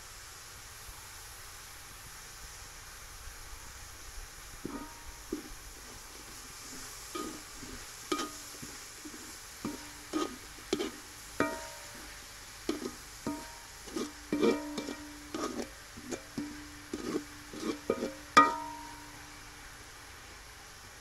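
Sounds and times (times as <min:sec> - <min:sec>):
vegetables sizzling in wok: 0:00.0 - 0:21.0
spatula knocking on metal wok: 0:04.7 - 0:19.2.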